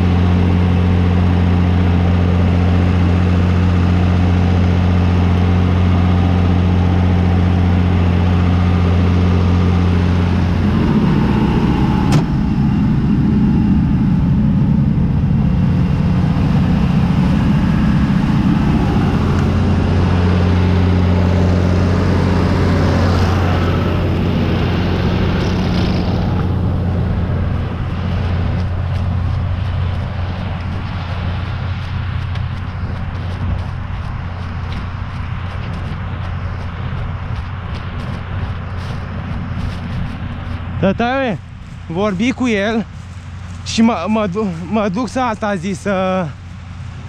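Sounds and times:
tractor diesel engine running: 0.0 - 47.0
sharp crack: 10.5 - 13.1.

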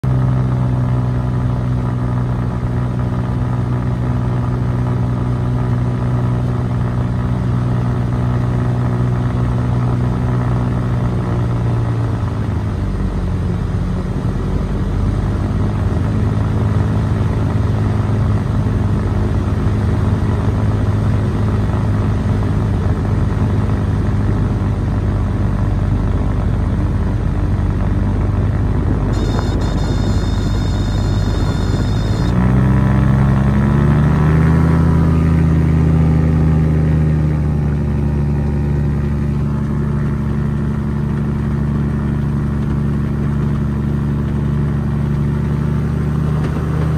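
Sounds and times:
aircraft engine droning: 12.2 - 45.4.

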